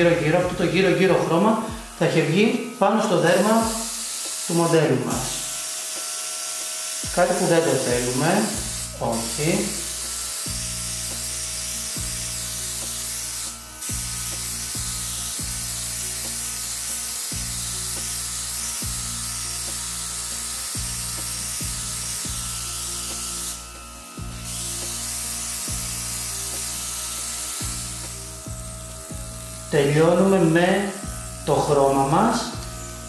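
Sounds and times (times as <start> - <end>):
airbrush compressor humming: 0.0 - 33.0
hiss of sprayed air: 3.2 - 32.7.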